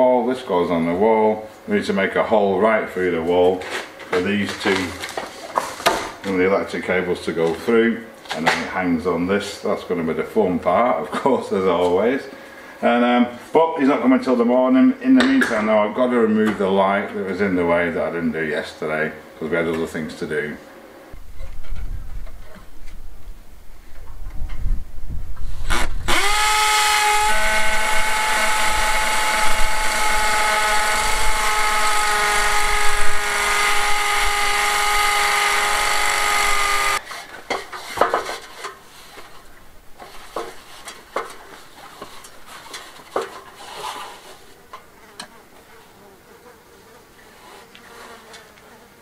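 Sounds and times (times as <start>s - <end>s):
power drill running: 25.7s - 37.0s.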